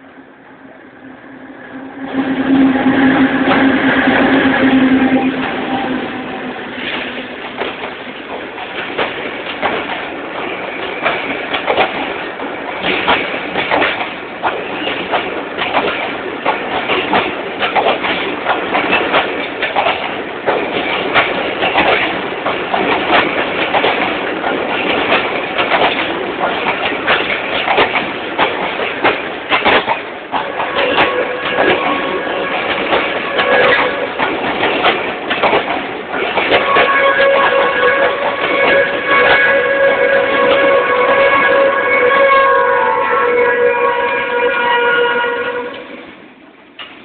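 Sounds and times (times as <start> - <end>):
train wheels clattering: 6.7 - 41.8.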